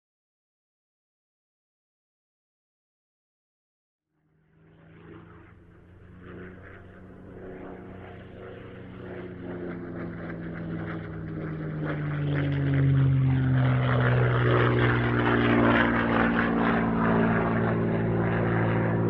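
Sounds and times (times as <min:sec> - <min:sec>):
propeller aircraft engine passing: 0:04.2 - 0:19.0.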